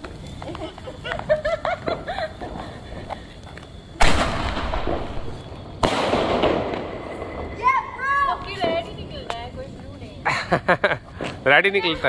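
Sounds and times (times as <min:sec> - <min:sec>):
hissing crackle: 0:00.0 - 0:10.3
firecracker bangs: 0:04.0 - 0:09.0.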